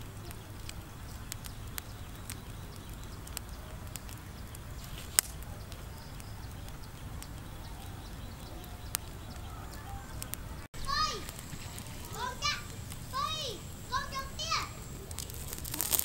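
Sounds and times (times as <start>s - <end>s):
fire crackling: 0.0s - 16.0s
loud snap: 4.8s - 7.4s.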